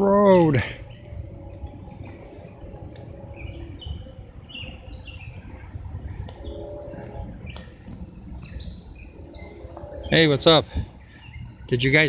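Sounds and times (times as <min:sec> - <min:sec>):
low steady rumble: 0:00.0 - 0:12.0
songbirds chirping: 0:00.0 - 0:12.0.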